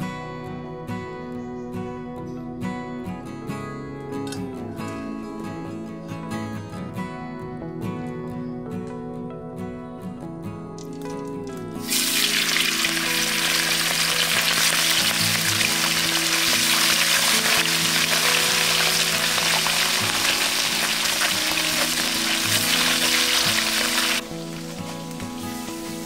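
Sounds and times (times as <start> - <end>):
fish sizzling in hot oil: 11.8 - 26.0.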